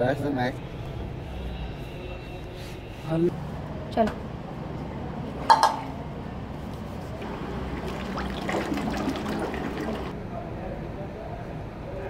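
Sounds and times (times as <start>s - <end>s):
thick liquid gurgling trickle: 7.2s - 10.2s.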